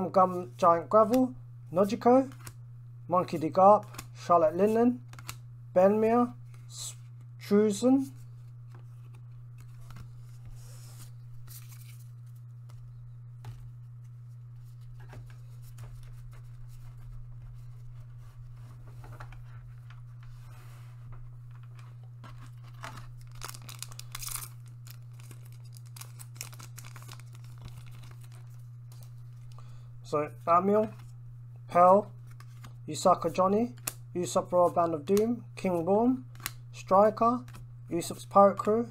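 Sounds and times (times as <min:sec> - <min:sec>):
steady low hum: 0:00.0 - 0:38.9
foil wrapper crinkling: 0:21.7 - 0:29.6.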